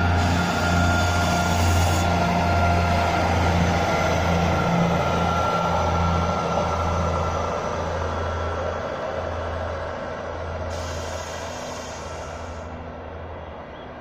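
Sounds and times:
diesel engine drone: 0.0 - 14.0.

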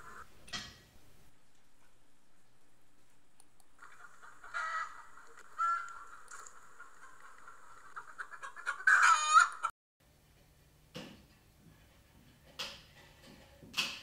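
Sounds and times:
chickens clucking: 0.0 - 0.7, 1.6 - 9.7
faint low hum: 0.0 - 9.1
rooster crowing: 4.5 - 6.5, 8.8 - 9.7.

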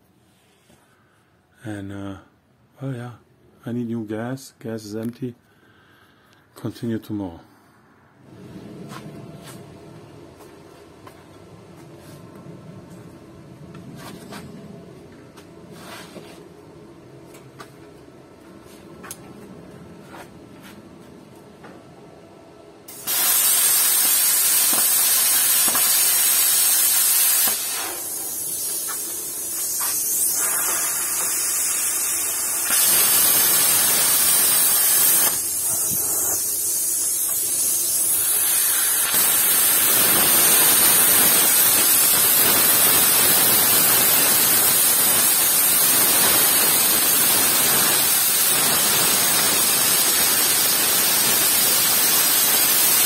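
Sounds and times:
plasma cutter hissing: 22.9 - 53.0.

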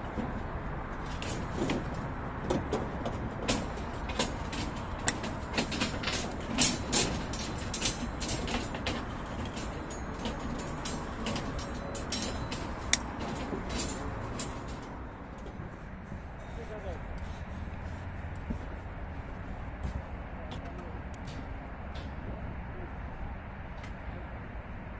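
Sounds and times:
wire twisting metallic clicks: 3.5 - 15.5.

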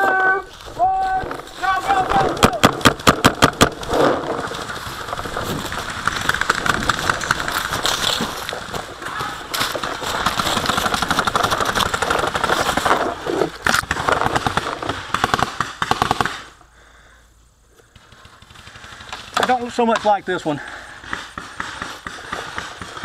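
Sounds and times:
paintball markers firing: 2.3 - 4.7, 9.6 - 16.5, 20.9 - 23.0
running through dry leaves: 3.7 - 15.1.

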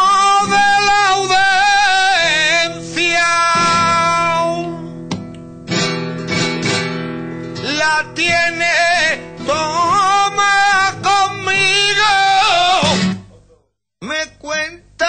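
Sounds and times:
man singing flamenco: 0.0 - 5.0, 7.6 - 13.2, 14.0 - 15.0
flamenco guitar: 0.0 - 13.4.

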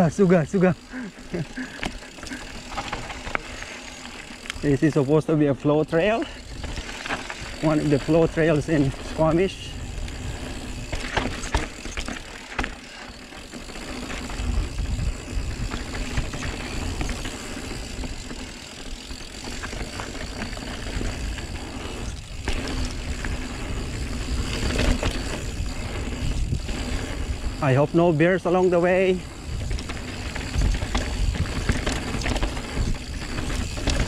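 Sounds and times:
bike clicks and rattles: 0.0 - 34.0
bike tyres rolling over dirt: 0.0 - 34.0
wind buffeting microphone: 14.2 - 18.2, 20.8 - 27.7, 29.2 - 34.0.

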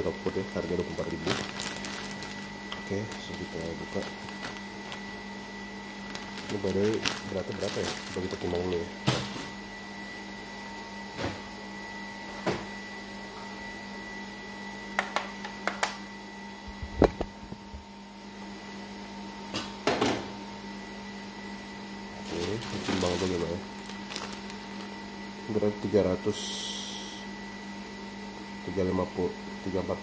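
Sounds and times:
machine hum: 0.0 - 18.2, 20.8 - 28.5.

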